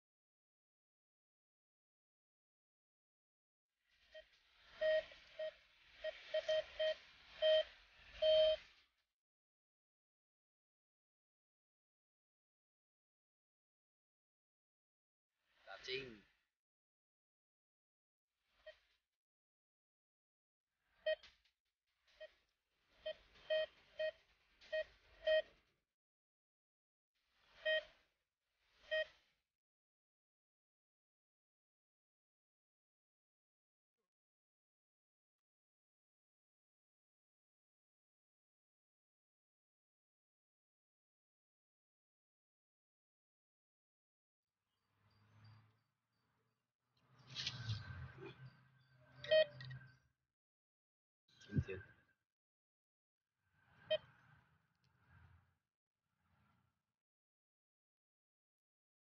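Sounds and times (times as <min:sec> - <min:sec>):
metal detector beeping: 0:04.7 - 0:08.7, 0:49.1 - 0:50.0.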